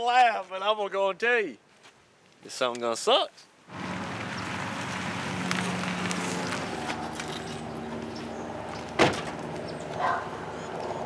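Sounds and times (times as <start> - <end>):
vehicle door shutting: 8.9 - 9.4.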